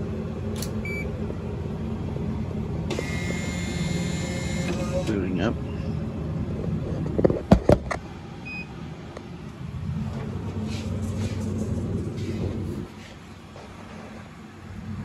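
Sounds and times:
vending machine humming: 0.0 - 15.0.

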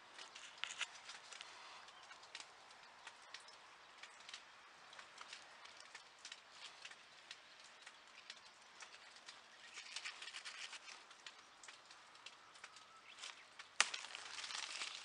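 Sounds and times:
leaves rustling: 0.0 - 2.5, 5.0 - 15.0
rain on plastic roof: 0.0 - 15.0
shoot snapping: 13.6 - 15.0.

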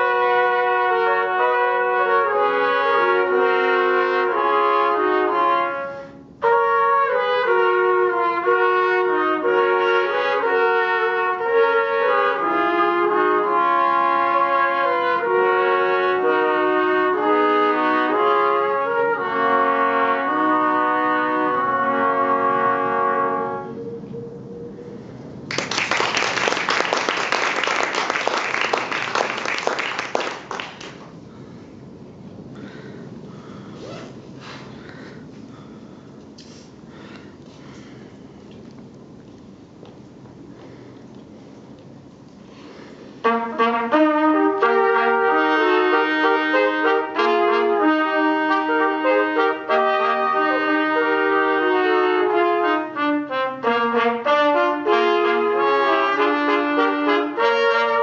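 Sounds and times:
trumpets playing in harmony: 0.0 - 25.0, 43.2 - 58.0
audience applause: 25.5 - 31.1.

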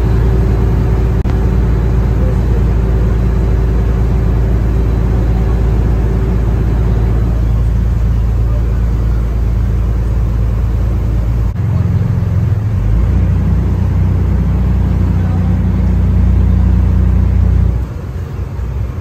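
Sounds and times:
boat engine running: 0.0 - 19.0
water rushing along hull: 0.0 - 19.0.

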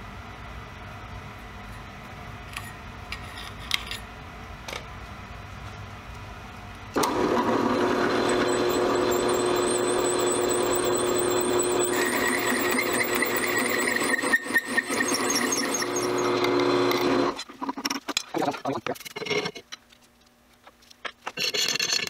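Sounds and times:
drill press motor hum: 6.9 - 17.4
hole saw grinding metal: 7.0 - 17.5
lower squeal: 8.2 - 16.5
high chirping squeal: 8.3 - 16.4.

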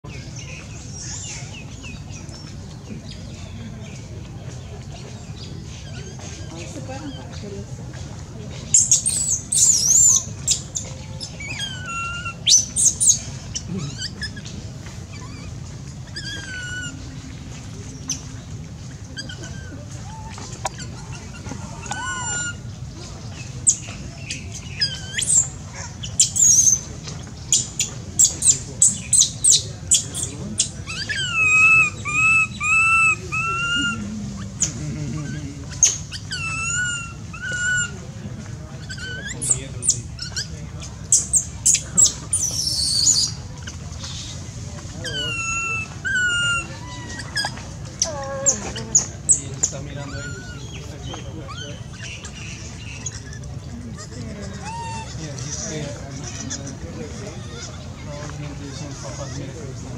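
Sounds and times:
baby monkey screeching: 8.7 - 14.5, 15.1 - 17.0, 19.2 - 22.7, 23.6 - 26.9, 27.5 - 38.0, 38.8 - 40.5, 41.1 - 58.0, 58.7 - 59.4.

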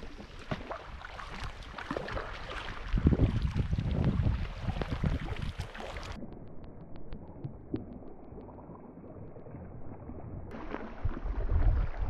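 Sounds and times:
water lapping against kayak hull: 0.0 - 6.2, 7.1 - 12.0
wind on microphone: 0.9 - 6.2, 10.5 - 12.0.

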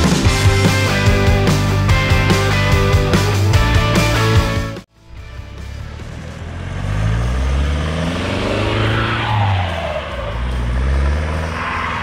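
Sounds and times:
off-road vehicle engine revving: 5.4 - 12.0.

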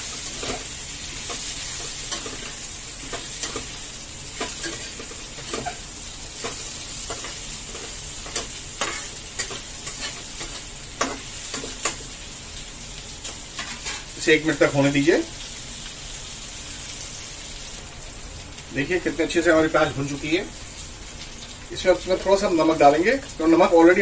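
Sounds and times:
onions sizzling in a pan: 0.0 - 24.0
metal spatula scraping pan: 4.4 - 12.0, 13.6 - 14.1.

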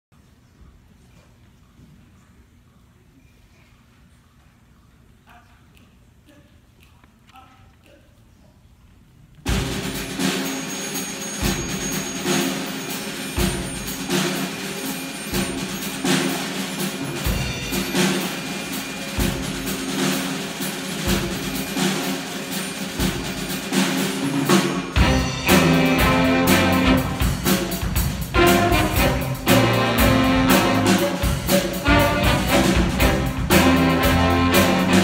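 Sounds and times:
big band playing: 9.4 - 35.0.

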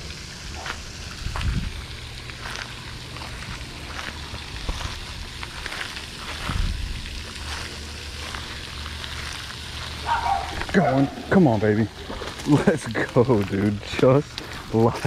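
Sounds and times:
fountain spray splashing on water: 0.0 - 15.0.

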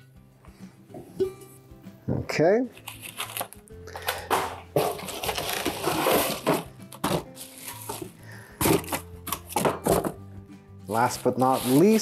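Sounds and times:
packaging rustling and crinkling: 2.8 - 8.1, 11.1 - 12.0.

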